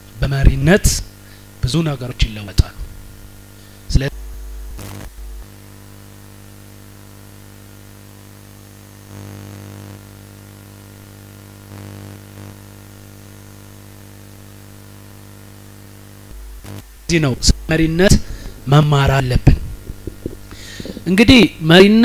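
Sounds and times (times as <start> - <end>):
recording hiss: 0.0 - 7.0, 16.3 - 22.0
electrical hum: 0.0 - 22.0.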